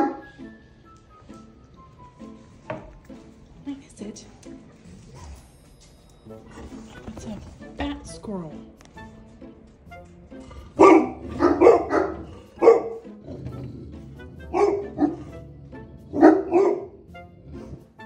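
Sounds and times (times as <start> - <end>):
dog barking loudly: 0.0 - 0.2, 10.7 - 13.1, 14.4 - 15.4, 16.1 - 17.1.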